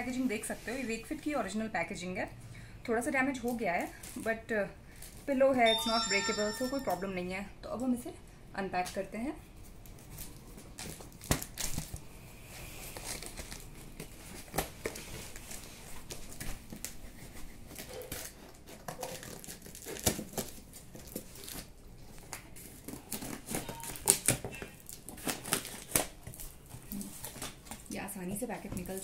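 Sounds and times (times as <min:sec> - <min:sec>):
tape crinkling: 0:09.6 - 0:12.1, 0:12.8 - 0:29.0
scissors cutting packing tape: 0:12.8 - 0:15.5, 0:16.1 - 0:28.0.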